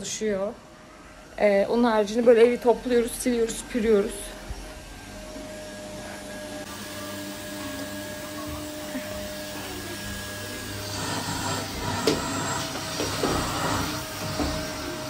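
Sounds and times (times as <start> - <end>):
vacuum cleaner running: 0.0 - 15.0.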